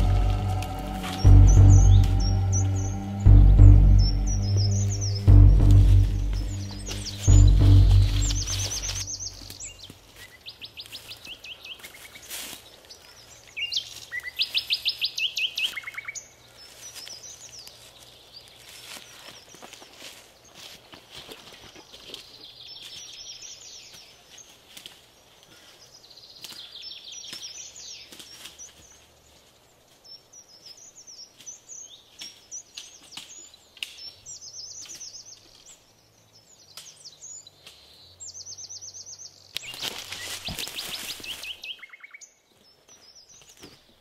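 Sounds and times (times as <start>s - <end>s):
low steady drone: 0.0s - 9.6s
birds chirping and trilling: 0.0s - 44.0s.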